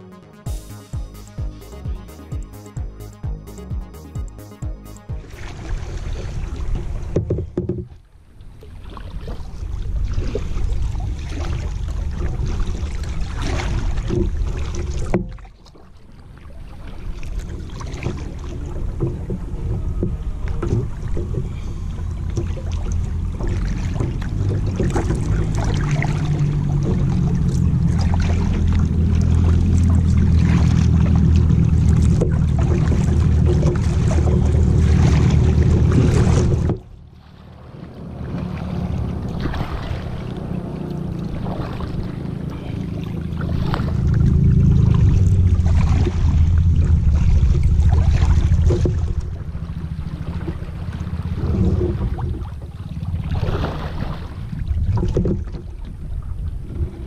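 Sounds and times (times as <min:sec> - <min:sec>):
kayak paddles splashing: 0:03.4 - 0:57.0
fast-flowing river: 0:16.4 - 0:55.1.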